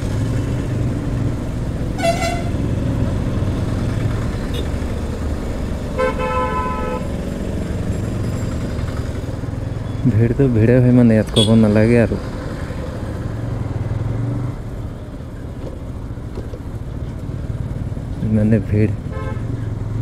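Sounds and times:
motorcycle engine running: 0.0s - 20.0s
road noise: 0.0s - 20.0s
vehicle horn toots: 2.0s - 2.6s, 6.0s - 7.1s, 11.3s - 11.7s, 19.1s - 19.5s.

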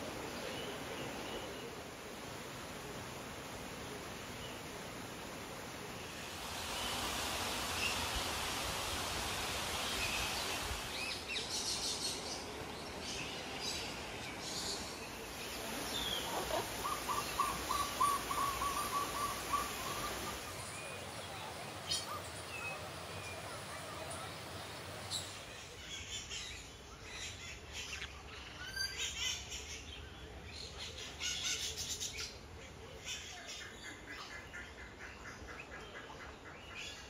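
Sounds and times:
background hiss: 0.0s - 37.0s
birds chirping: 9.8s - 30.0s.

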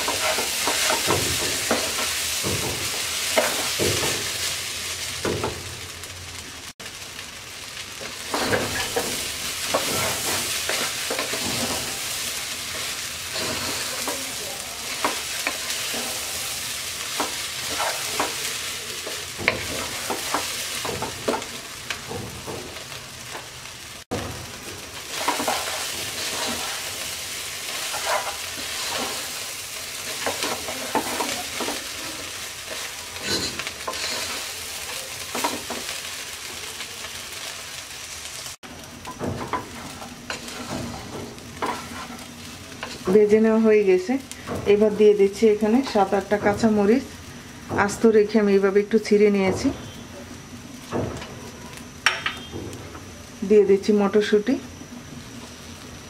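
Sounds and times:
wooden spatula scraping and knocking: 0.0s - 4.3s, 8.1s - 16.4s, 17.0s - 22.8s, 25.1s - 29.4s, 30.0s - 35.9s, 39.1s - 43.2s
rice and vegetables sizzling: 0.0s - 56.0s.

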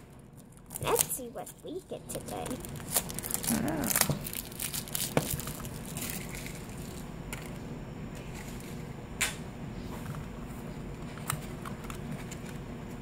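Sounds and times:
plastic packaging crinkling: 0.3s - 7.6s.

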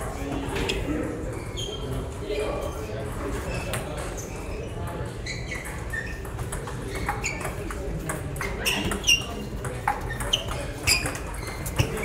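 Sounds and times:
table tennis ball pinging: 5.6s - 12.0s.

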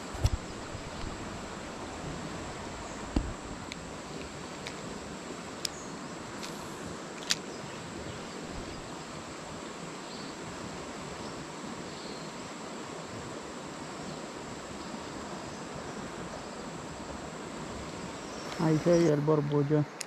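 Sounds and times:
river water rushing: 0.0s - 20.0s.

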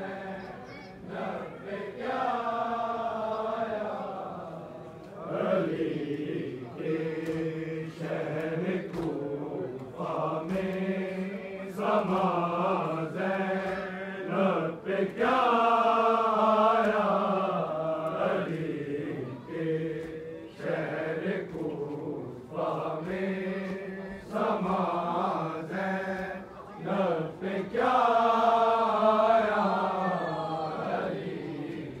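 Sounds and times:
men chanting a lament: 0.0s - 32.0s.

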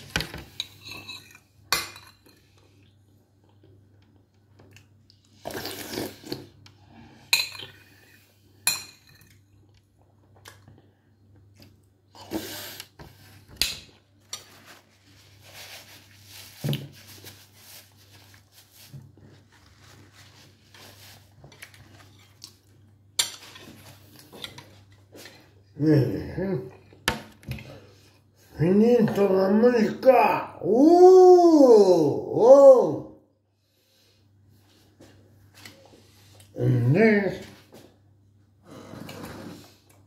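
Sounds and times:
cutlery clinking on a bowl: 0.5s - 2.4s.

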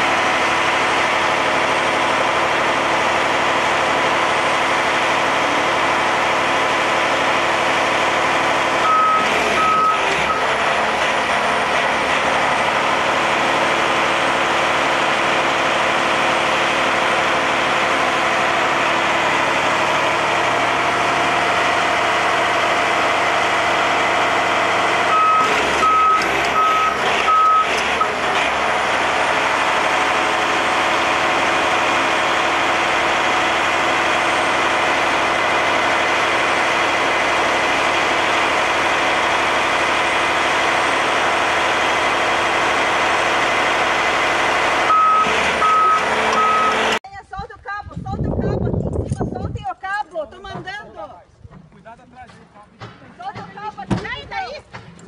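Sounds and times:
heavy diesel engine running: 0.0s - 47.0s
backup alarm beeps: 8.8s - 10.5s, 25.1s - 28.2s, 44.9s - 46.9s.

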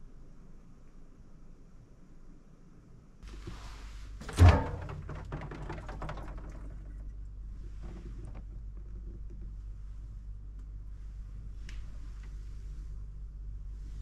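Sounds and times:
heavy thunk: 4.2s - 6.6s
small clicks and rattles: 4.2s - 9.7s
steady low hum: 6.9s - 14.0s.

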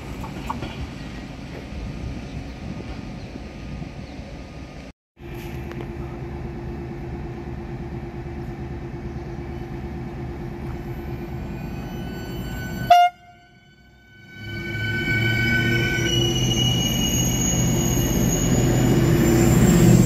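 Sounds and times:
train equipment humming: 0.0s - 20.0s
train horn toot: 11.9s - 16.4s.

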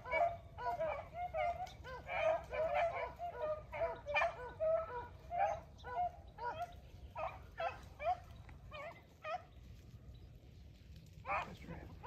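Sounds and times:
dogs baying: 0.0s - 9.5s.

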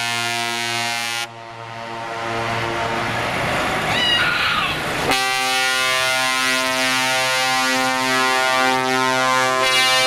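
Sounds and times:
truck air horns chord: 0.0s - 3.6s, 5.0s - 10.0s
falling whistle: 9.6s - 10.0s.

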